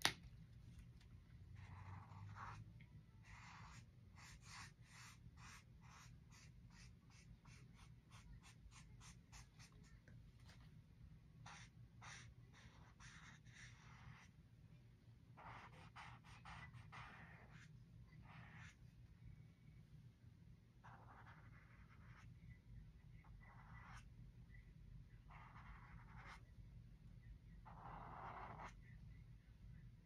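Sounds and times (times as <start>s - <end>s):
marker strokes on paper: 3.2s - 10.7s, 11.4s - 14.3s, 15.4s - 18.8s, 20.8s - 22.4s, 23.3s - 24.1s, 25.3s - 26.5s, 27.7s - 28.8s.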